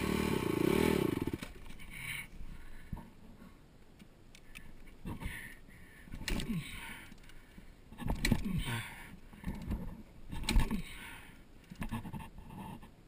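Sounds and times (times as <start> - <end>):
dirt bike engine revving: 0.0 - 1.5.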